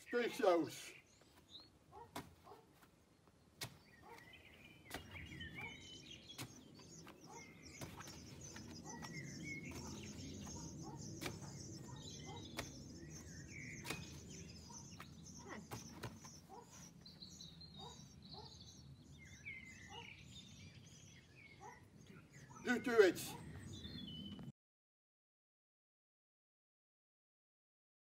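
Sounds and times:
birds chirping: 0:00.0 - 0:24.5
low outdoor background noise: 0:00.0 - 0:24.5
rugby ball slapping into hands: 0:04.9 - 0:05.3, 0:07.8 - 0:10.6, 0:13.8 - 0:14.4, 0:15.0 - 0:16.3.

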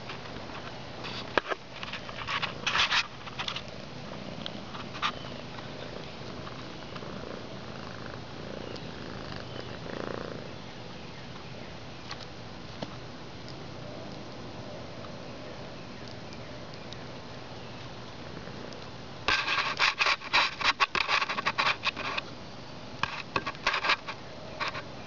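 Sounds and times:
sharp crackles and clicks: 0:00.0 - 0:10.0, 0:15.8 - 0:22.3.

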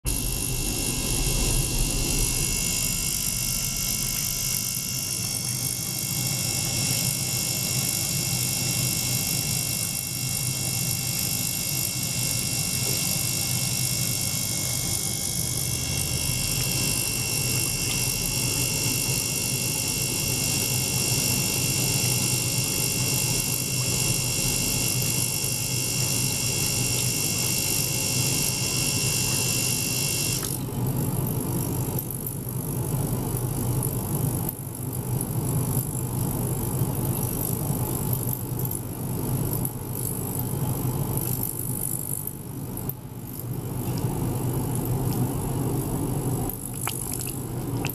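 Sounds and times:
high-pitched whine: 0:00.0 - 0:08.8, 0:11.3 - 0:22.2
circulation pump running: 0:00.0 - 0:47.9.

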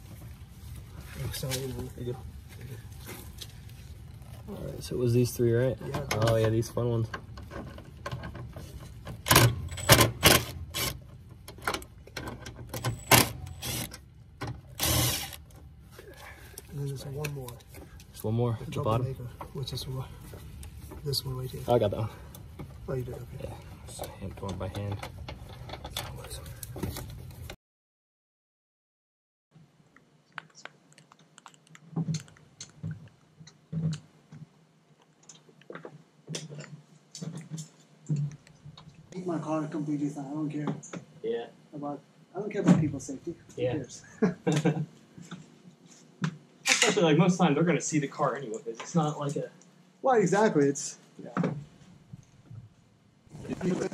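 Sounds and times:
cordless power driver running: 0:13.3 - 0:13.9, 0:14.8 - 0:15.4.

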